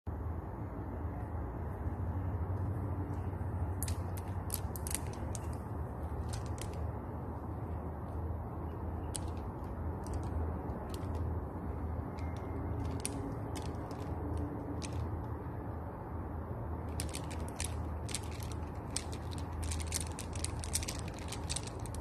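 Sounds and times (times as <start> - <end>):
low hum: 0.1 - 22.0
beads clicking together: 3.0 - 15.8, 16.8 - 22.0.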